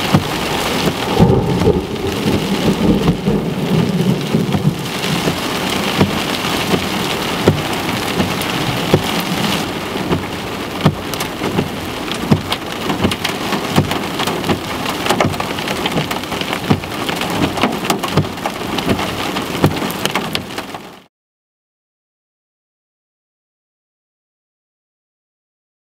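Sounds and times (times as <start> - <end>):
low rumble of thunder: 0.0 - 9.6
rain on a car roof: 0.0 - 21.1.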